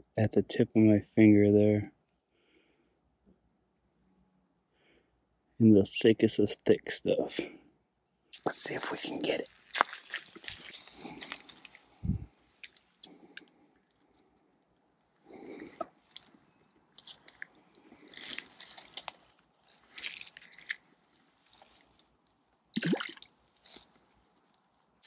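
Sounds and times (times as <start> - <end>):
brush rustling: 9.1 - 12.9, 15.5 - 22.2
footsteps crunching through dry leaves: 9.5 - 12.0, 18.0 - 20.8.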